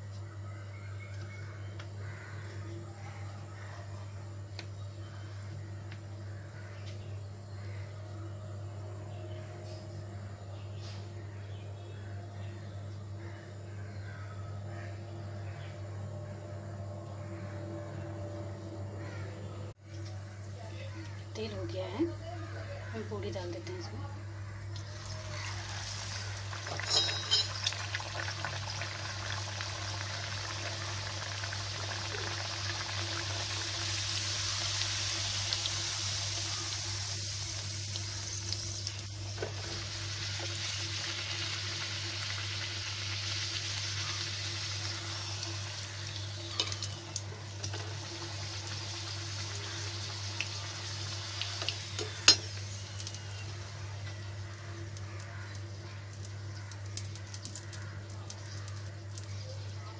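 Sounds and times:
oil sizzling: 0:24.4 - 0:59.8
spoon clinking against pan: 0:26.8 - 0:27.7.

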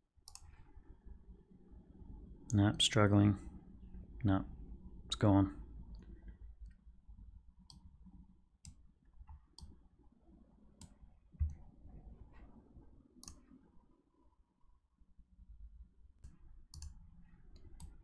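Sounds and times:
faint mouse clicks: 0:00.2 - 0:00.6, 0:07.6 - 0:07.9, 0:08.6 - 0:09.8, 0:13.2 - 0:13.6, 0:16.2 - 0:18.0.

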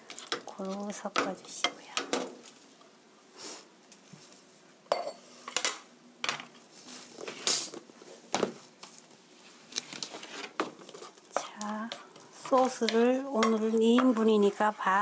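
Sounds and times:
pan and spatula knocking: 0:12.4 - 0:14.2.

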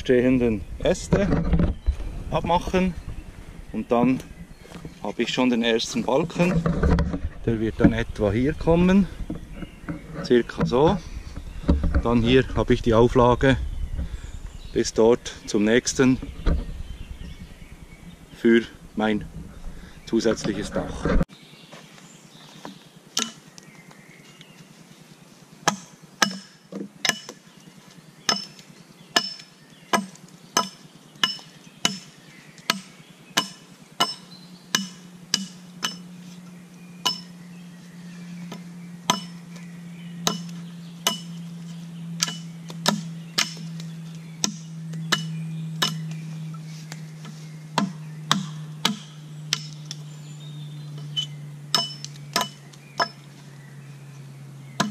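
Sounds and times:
axe chopping wooden pole: 0:23.2 - 0:23.4, 0:25.6 - 0:27.5, 0:28.3 - 0:36.1, 0:37.0 - 0:37.3, 0:38.5 - 0:39.4, 0:40.2 - 0:41.4, 0:42.2 - 0:43.8, 0:44.4 - 0:46.2, 0:47.8 - 0:50.0, 0:51.2 - 0:53.3.

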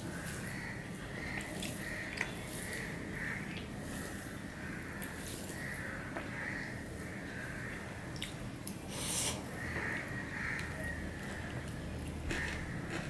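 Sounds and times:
chewing: 0:10.6 - 0:13.0.

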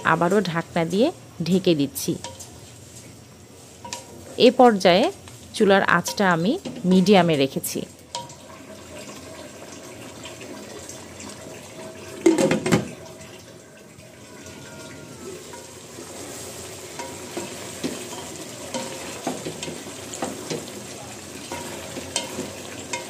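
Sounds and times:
curry sizzling in a pan: 0:00.0 - 0:23.0
spatula stirring and scraping: 0:02.2 - 0:04.3, 0:15.0 - 0:23.0.

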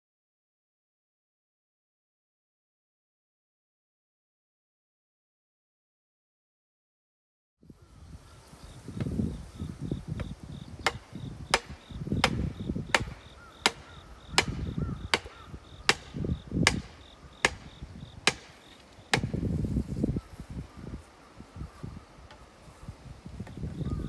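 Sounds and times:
insects chirping: 0:07.7 - 0:24.0
hammer striking wooden pole: 0:10.8 - 0:19.4.

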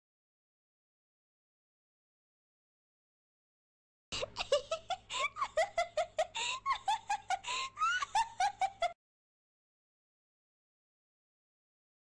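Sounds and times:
woman giggling: 0:04.2 - 0:09.0.

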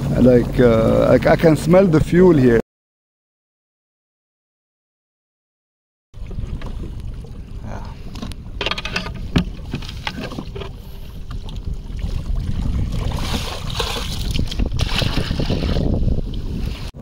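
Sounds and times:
water rushing and splashing: 0:00.0 - 0:02.6, 0:06.2 - 0:17.0
watercraft engine rumble: 0:00.0 - 0:02.6, 0:06.2 - 0:17.0.

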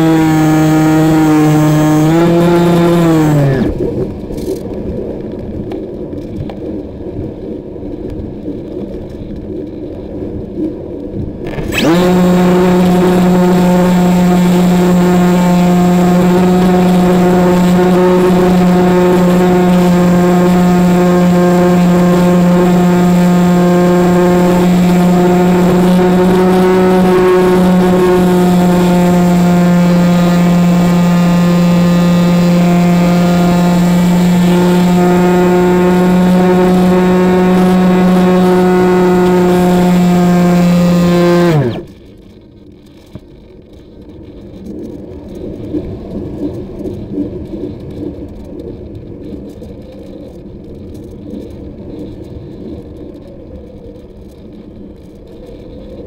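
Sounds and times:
model plane motor droning: 0:00.0 - 0:04.1, 0:11.5 - 0:42.0.

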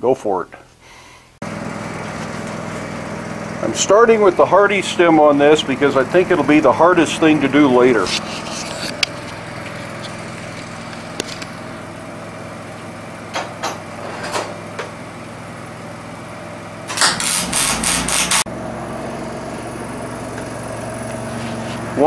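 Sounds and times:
steady background hum: 0:00.3 - 0:14.9
welding arc crackle: 0:08.2 - 0:11.8, 0:16.9 - 0:18.4.

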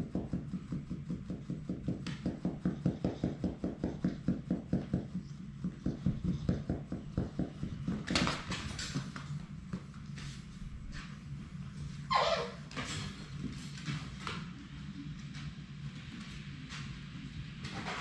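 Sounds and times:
puppy making rhythmic pulses: 0:00.0 - 0:09.9.

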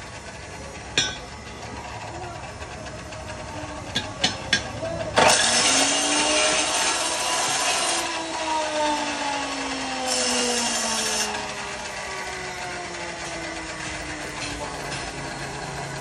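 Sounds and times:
chop saw grinding through metal: 0:04.0 - 0:16.0
saw motor whine: 0:05.1 - 0:16.0.

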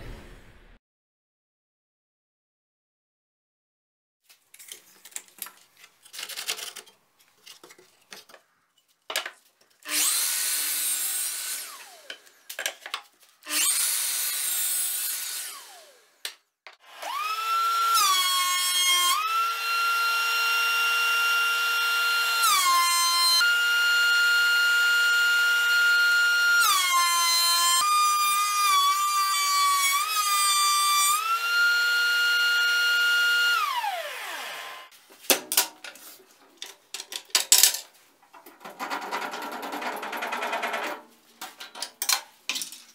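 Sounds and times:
jointer-planer cutting boards: 0:16.8 - 0:34.9.

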